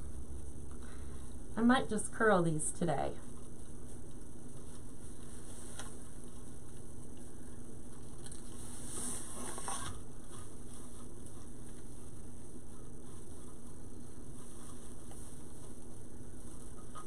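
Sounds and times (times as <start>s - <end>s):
low steady hum: 0.0s - 17.0s
mesh rustling and crinkling: 3.2s - 7.2s, 7.8s - 17.0s.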